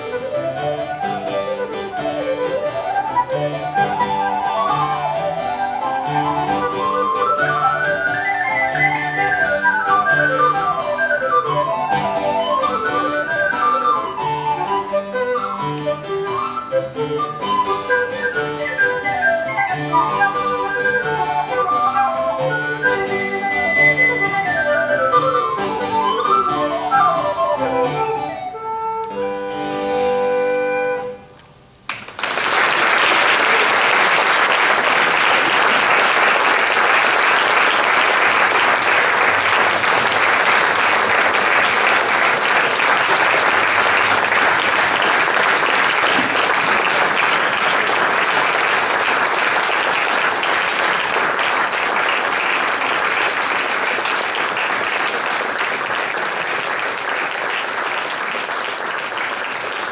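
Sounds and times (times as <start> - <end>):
woodwind playing quick runs: 0.0 - 31.3
audience applause: 3.1 - 14.8, 31.9 - 59.9.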